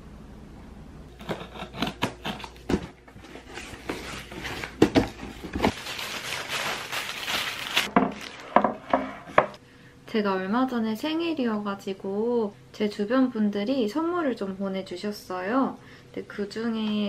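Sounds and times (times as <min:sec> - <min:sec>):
paper packing wrap crinkling: 0:02.1 - 0:08.9.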